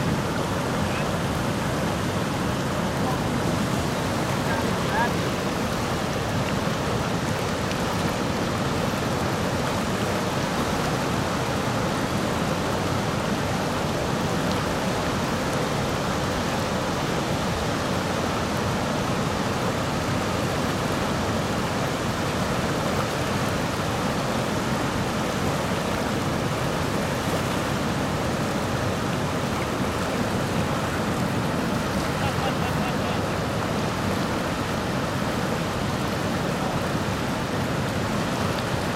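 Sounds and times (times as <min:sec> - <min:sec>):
rapids churning around legs: 0:00.0 - 0:38.9.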